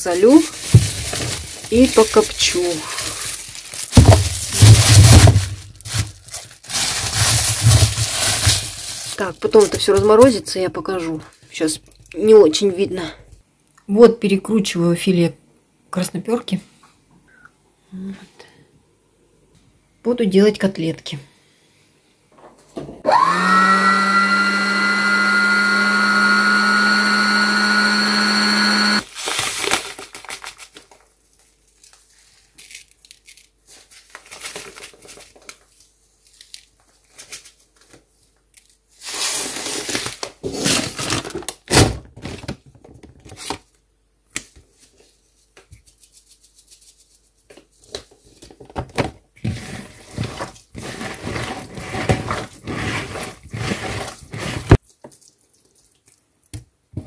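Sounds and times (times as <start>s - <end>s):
packet rustling: 0.0s - 10.4s, 28.8s - 41.7s
knocks in plastic bowl: 4.0s - 5.5s
electric meat grinder motor: 23.1s - 29.0s.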